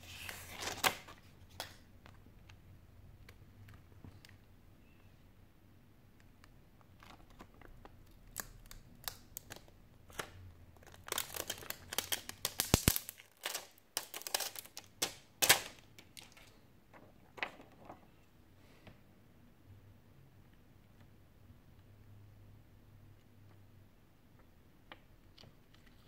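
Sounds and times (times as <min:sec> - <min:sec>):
plastic film crinkling: 0:06.8 - 0:16.5.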